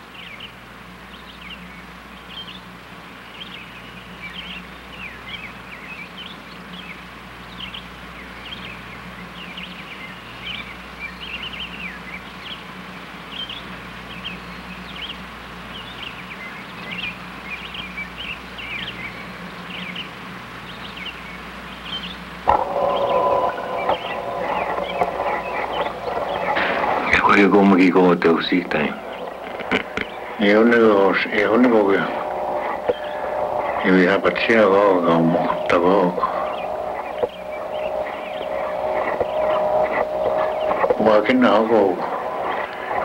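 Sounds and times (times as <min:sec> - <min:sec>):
birds chirping: 0:00.0 - 0:43.0
steady low hum: 0:00.0 - 0:43.0.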